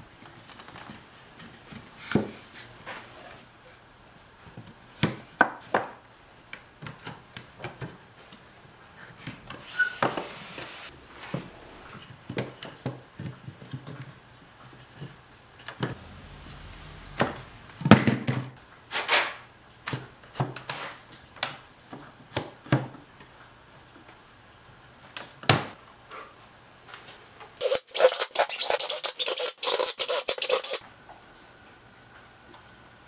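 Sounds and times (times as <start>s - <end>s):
wood rubbing: 27.6s - 30.8s.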